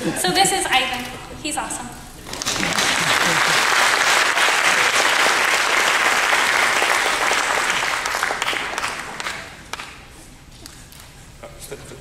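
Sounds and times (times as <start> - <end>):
audience applause: 2.3 - 10.0.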